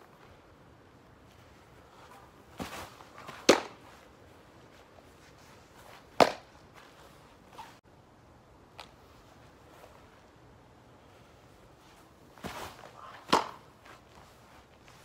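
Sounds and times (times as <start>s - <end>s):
baseball smacking into leather glove: 2.6s - 4.0s, 6.1s - 6.5s, 12.4s - 13.8s.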